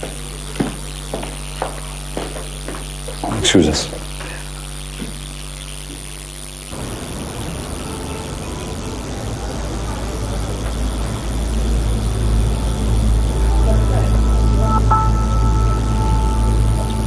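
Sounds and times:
indoor room hum: 0.0 - 17.0
street ambience rumble: 6.7 - 17.0.

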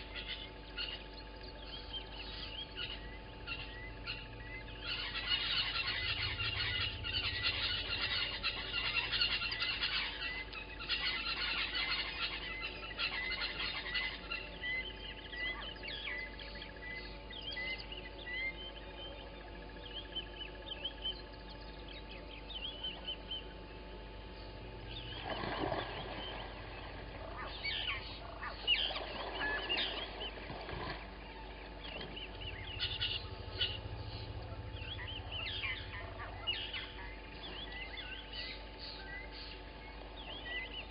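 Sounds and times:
harsh bird calls: 0.0 - 19.2, 24.3 - 40.9
birds chirping and whistling: 0.0 - 23.6, 24.3 - 40.9.

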